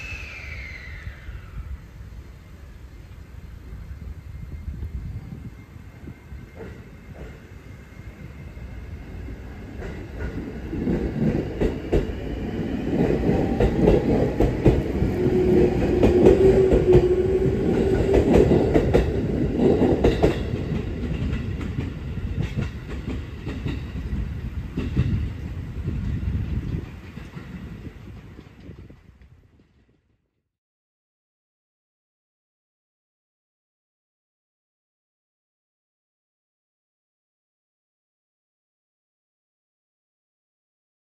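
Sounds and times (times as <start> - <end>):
electric train rumbling: 0.0 - 30.2.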